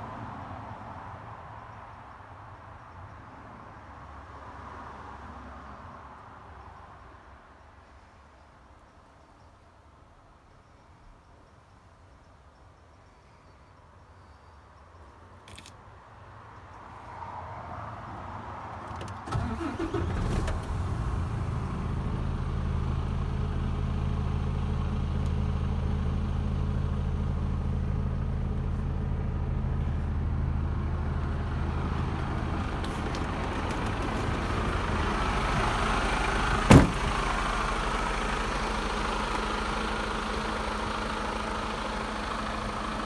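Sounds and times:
diesel engine cranking and idling: 19.1 - 43.0
cab door slamming: 36.7 - 37.1.

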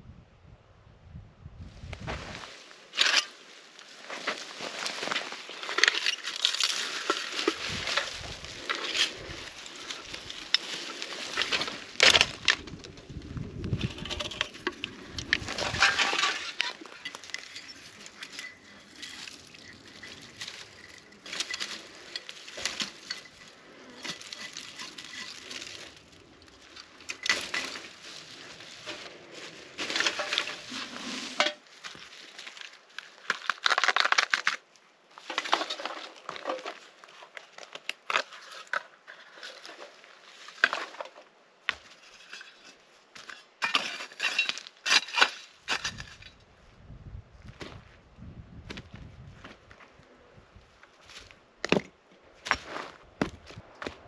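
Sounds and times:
rocks clacking: 4.1 - 42.0.

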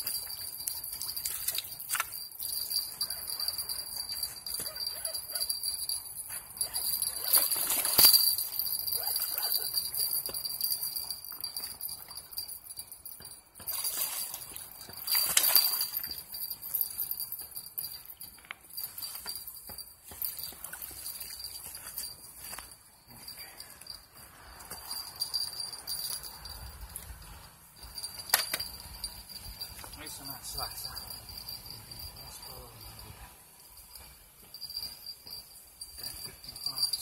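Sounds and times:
insects trilling: 0.0 - 12.8, 23.2 - 37.0.

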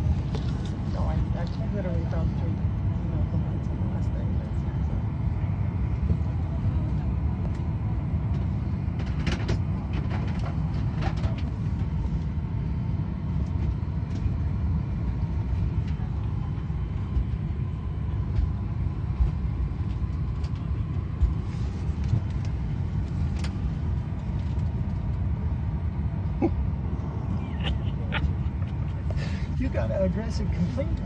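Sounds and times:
airliner cabin rumble: 0.0 - 31.0
faint steady whine: 0.0 - 31.0.

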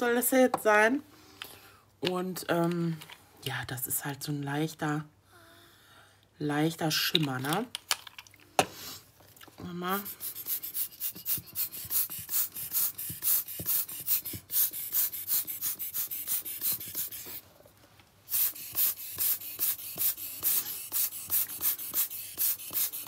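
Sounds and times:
hand air blower puffing: 10.2 - 17.4, 18.3 - 23.0.

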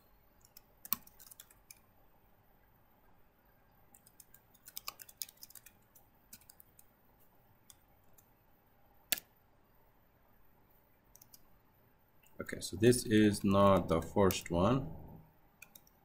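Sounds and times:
computer keyboard typing: 0.4 - 1.8, 3.9 - 6.9, 11.1 - 11.5, 15.6 - 16.0.

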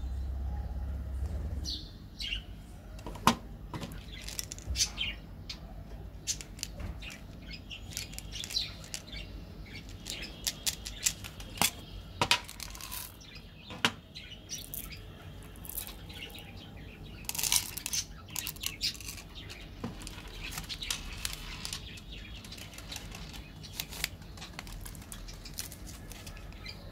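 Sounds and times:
candies clicking in plastic tube: 3.8 - 4.7, 6.3 - 9.2, 9.8 - 13.2, 14.6 - 16.4, 17.2 - 26.7
wrappers crinkling: 17.3 - 26.9.

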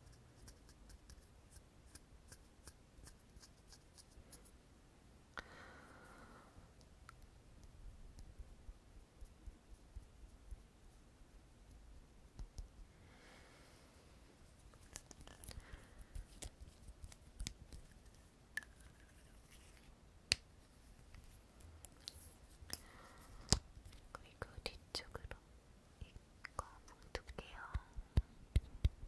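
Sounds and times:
soft rustling: 12.6 - 24.2.

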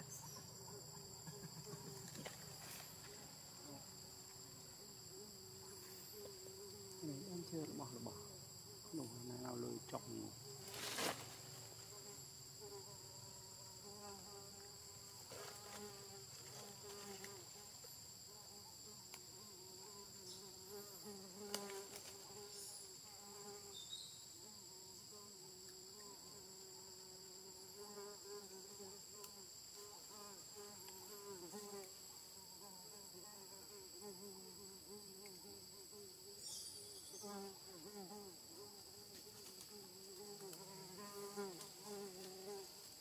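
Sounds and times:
faint insect drone: 0.0 - 43.0.

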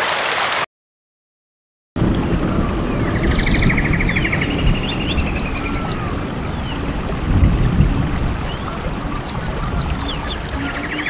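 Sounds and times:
falling water rushing: 0.0 - 0.7, 2.0 - 11.0
bird chirping: 8.5 - 11.0.

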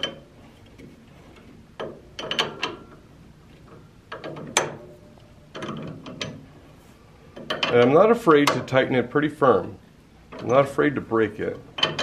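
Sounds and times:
metal chuck clicks and knocks: 0.0 - 3.0, 3.6 - 6.4, 7.3 - 8.8, 11.7 - 12.0.

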